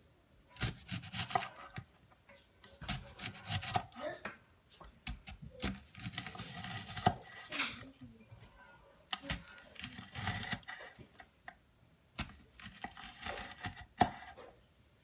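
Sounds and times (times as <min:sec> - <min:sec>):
knife slicing onion: 0:00.5 - 0:01.8, 0:02.8 - 0:04.0, 0:05.0 - 0:07.5, 0:09.1 - 0:11.2, 0:12.1 - 0:14.4.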